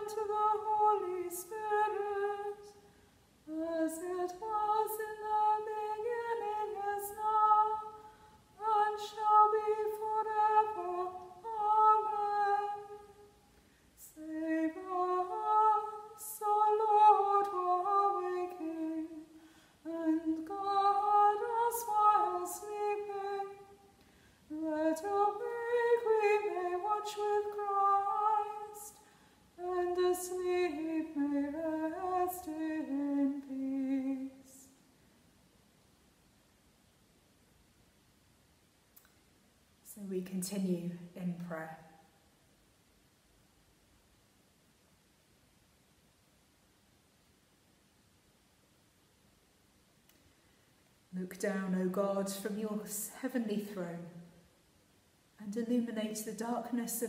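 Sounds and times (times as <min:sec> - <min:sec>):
woman singing unaccompanied: 0:00.0 - 0:13.4, 0:14.0 - 0:23.9, 0:24.5 - 0:29.0, 0:29.6 - 0:34.8, 0:51.1 - 0:54.4, 0:55.4 - 0:57.0.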